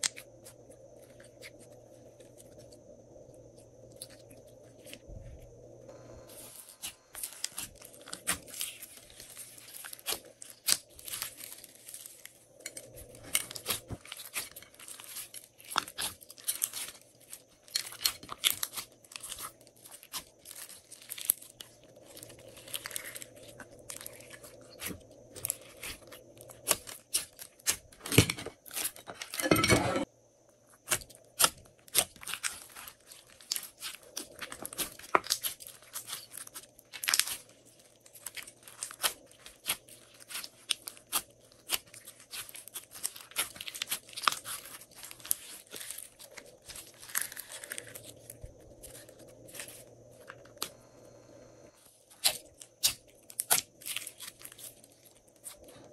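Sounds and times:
slime being squeezed and kneaded: 6.4s - 12.2s, 13.5s - 27.8s, 30.8s - 49.8s.

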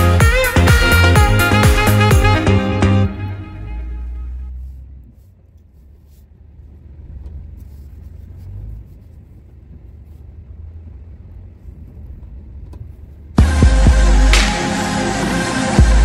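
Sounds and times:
pickup truck engine rumble: 0.0s - 16.0s.

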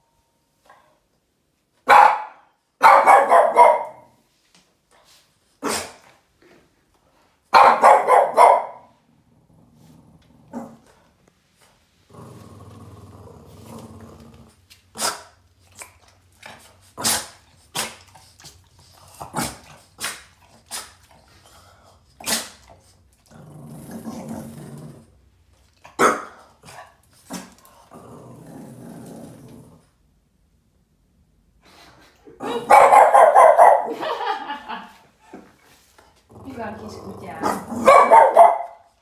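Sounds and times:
dog barking: 1.8s - 4.2s, 7.5s - 8.9s, 26.0s - 26.4s, 32.4s - 34.0s, 37.4s - 38.9s
dog growling: 9.1s - 11.0s, 12.0s - 14.6s, 21.1s - 25.3s, 26.6s - 30.0s, 36.3s - 37.9s.

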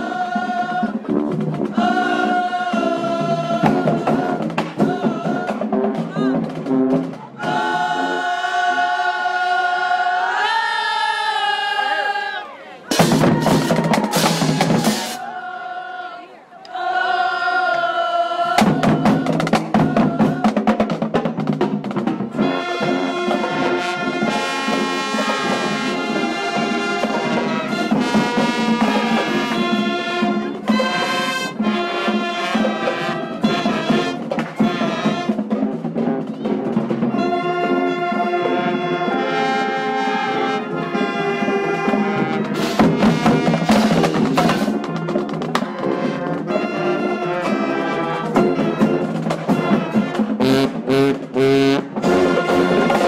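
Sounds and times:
drumline beat: 0.0s - 8.9s, 12.9s - 15.3s, 18.4s - 53.0s
marching band playing: 0.0s - 10.5s, 12.9s - 15.6s, 18.2s - 53.0s.

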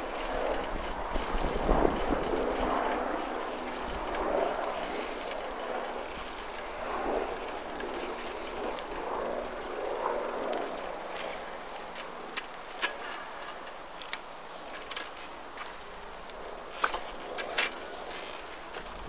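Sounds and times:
steady outdoor noise: 0.0s - 19.0s.

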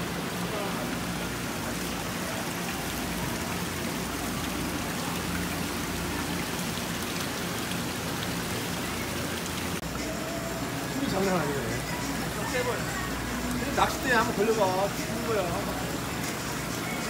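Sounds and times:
water pouring into tanks: 0.0s - 17.0s.

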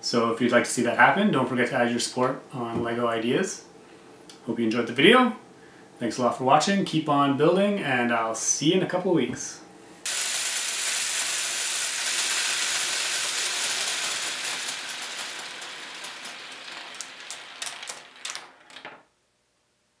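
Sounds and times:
motor-driven wheels whirring: 10.1s - 18.7s
plastic balls rattling: 10.1s - 19.0s.

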